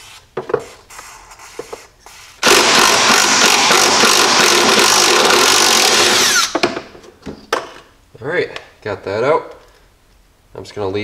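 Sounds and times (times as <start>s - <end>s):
cordless power driver running: 2.4s - 6.6s.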